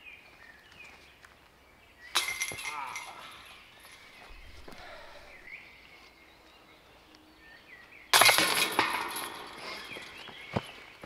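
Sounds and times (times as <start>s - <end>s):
disc hitting basket chains: 2.1s - 4.7s, 8.1s - 10.2s.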